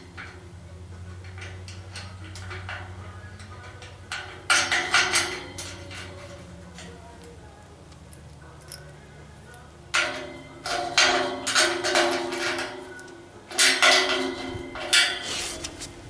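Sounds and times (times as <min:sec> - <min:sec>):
steel clanking on steel: 0:00.0 - 0:07.2, 0:09.9 - 0:16.0.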